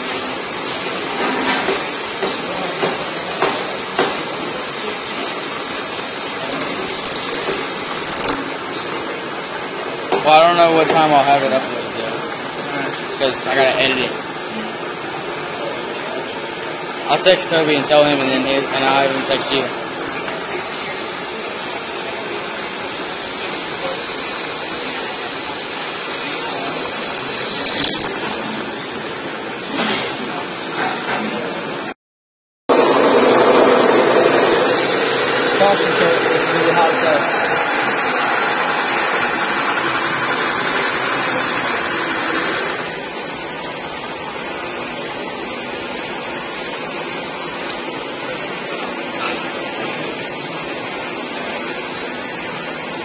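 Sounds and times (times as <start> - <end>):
workshop machinery noise: 0.0 - 13.1, 14.1 - 31.9, 32.7 - 53.0
drill cutting metal: 5.8 - 8.4, 23.2 - 28.6.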